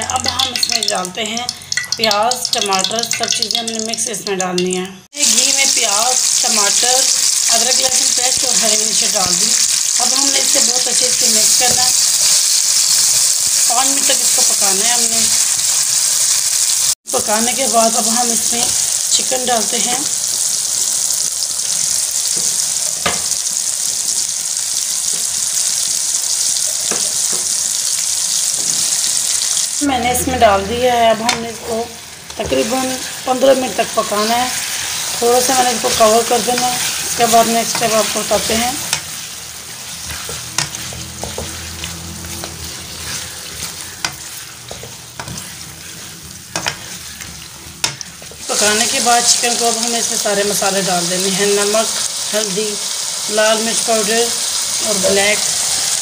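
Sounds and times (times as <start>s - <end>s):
vegetables sizzling in hot fat: 0.0s - 56.0s
spatula scraping pan: 28.4s - 50.1s.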